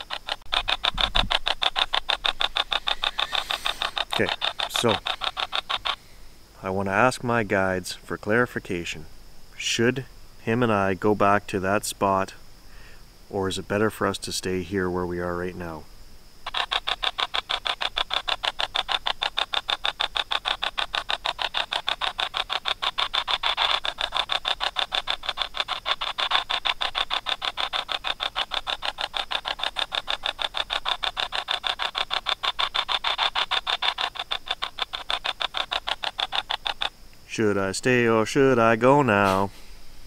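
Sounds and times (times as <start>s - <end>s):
choppy pulsing radio static: 0.0s - 6.0s.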